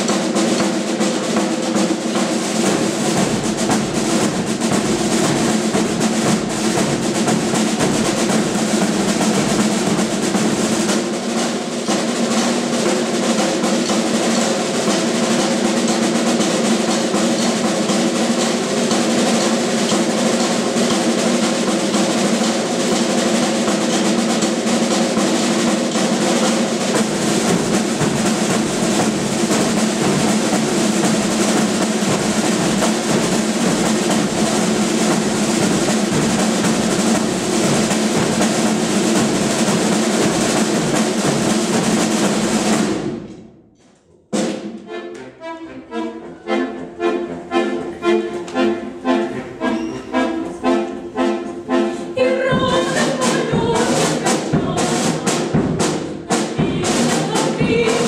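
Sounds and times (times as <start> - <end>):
marching snare drum rolls: 0.0 - 43.6, 44.3 - 45.1, 50.2 - 58.0
button accordion chords: 44.7 - 55.2
bass drum beats: 52.5 - 58.0.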